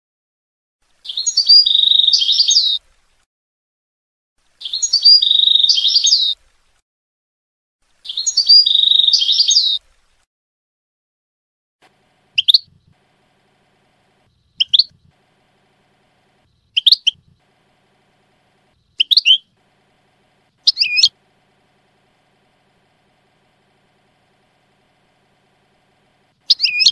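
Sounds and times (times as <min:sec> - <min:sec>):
goldfinch twittering song: 0:00.9 - 0:03.2, 0:04.4 - 0:06.8, 0:07.9 - 0:10.2, 0:12.2 - 0:13.1, 0:13.8 - 0:26.9.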